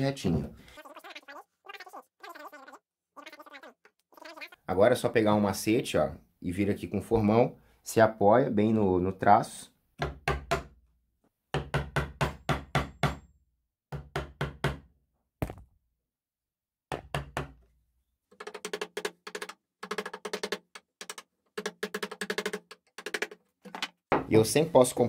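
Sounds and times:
mallet striking chisel into wood: 0:11.5 - 0:13.2.

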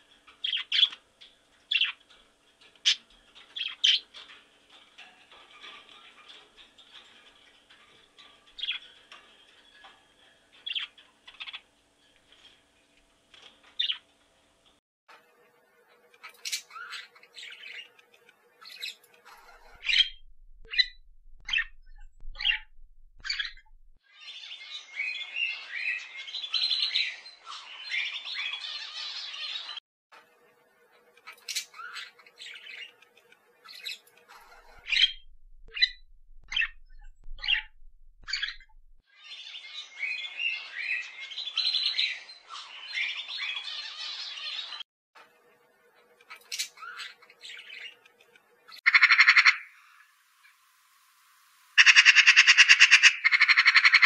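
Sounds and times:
faint budgerigar chirps: 0:18.8 - 0:23.8, 0:33.8 - 0:38.9, 0:48.9 - 0:49.7, 0:51.8 - 0:54.0
budgerigar chatter: 0:48.9 - 0:49.7, 0:51.8 - 0:54.0.

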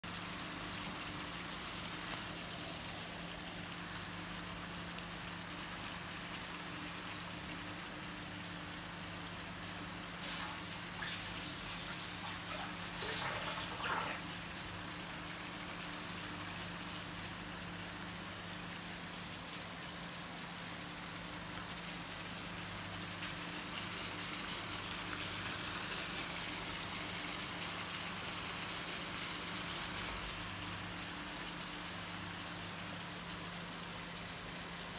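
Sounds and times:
fish frying in hot oil: 0:00.0 - 0:34.9
oil crackling and popping: 0:00.1 - 0:05.9, 0:10.1 - 0:14.5.

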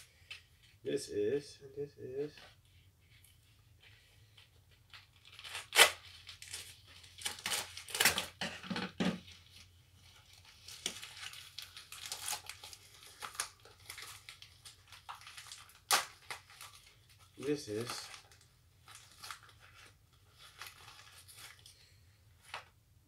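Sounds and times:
packet tearing and crinkling: 0:04.9 - 0:08.4, 0:10.2 - 0:21.8.

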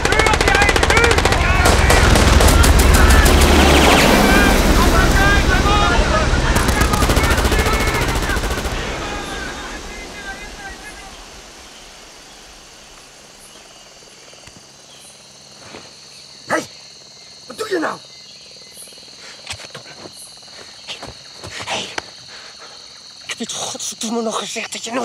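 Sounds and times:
sharp crack: 0:00.0 - 0:13.1
insects chirring: 0:00.0 - 0:25.0.

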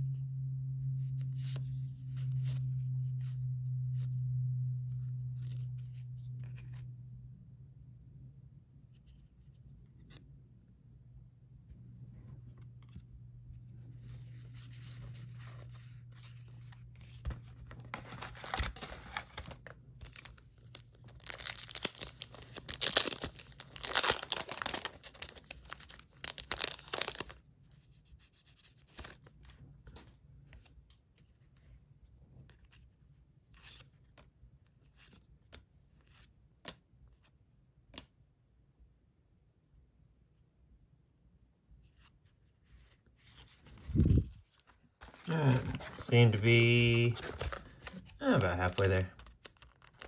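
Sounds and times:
foil wrappers tearing and crinkling: 0:18.1 - 0:27.4.

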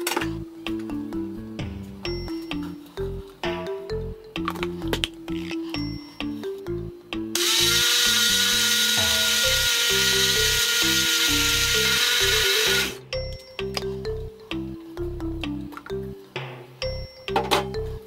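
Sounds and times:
background music: 0:00.0 - 0:18.0
blender motor whining: 0:07.4 - 0:13.0.

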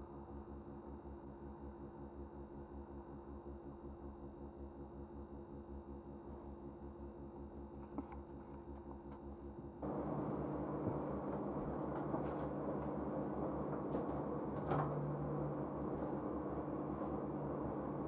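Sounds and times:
steady rumbling drone: 0:09.8 - 0:18.0.

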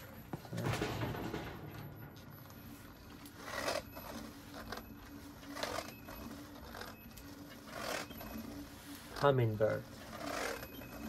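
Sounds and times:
faint electric motor whine: 0:02.1 - 0:11.0.

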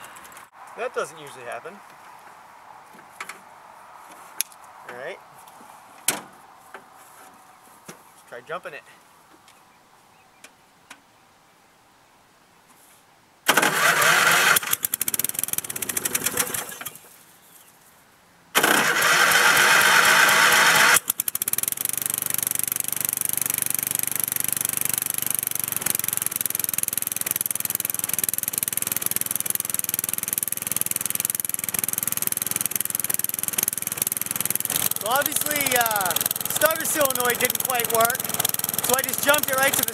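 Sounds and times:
mower engine running: 0:13.5 - 0:17.0, 0:18.6 - 0:39.9
starter motor cranking: 0:13.5 - 0:17.0, 0:18.6 - 0:39.9.

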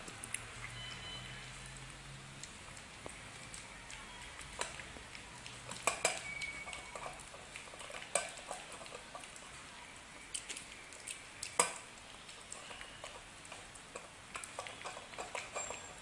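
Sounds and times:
kibble clinking in metal bowl: 0:05.7 - 0:08.9, 0:14.4 - 0:16.0.

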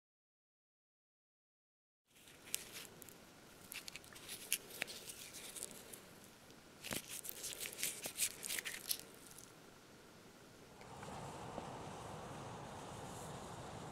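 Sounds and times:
cardboard tubes rustling and clicking: 0:02.1 - 0:09.5.

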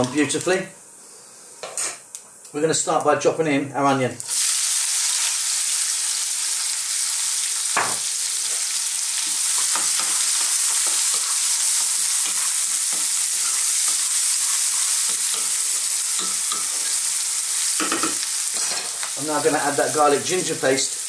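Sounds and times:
onion sizzling in hot oil: 0:04.2 - 0:21.0.

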